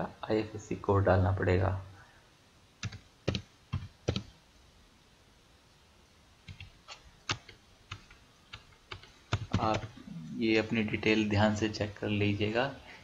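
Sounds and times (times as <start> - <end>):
computer keyboard typing: 2.8 - 4.3, 6.4 - 10.0.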